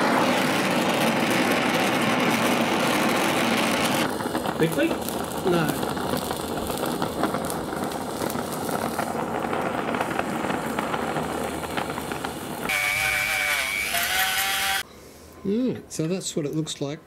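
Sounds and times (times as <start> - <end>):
torch flame hissing and crackling: 0.0 - 14.9
rotary tool whine: 12.6 - 14.9.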